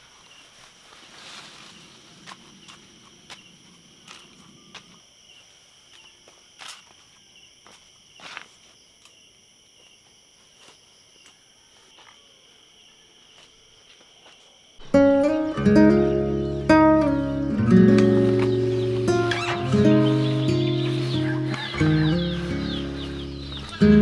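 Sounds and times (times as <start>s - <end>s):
high-pitched insect chorus: 0.0s - 24.0s
acoustic guitar music: 14.8s - 24.0s.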